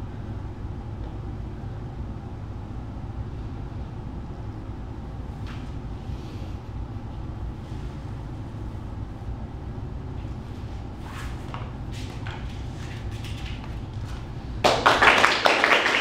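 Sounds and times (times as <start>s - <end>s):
low room rumble: 0.0s - 16.0s.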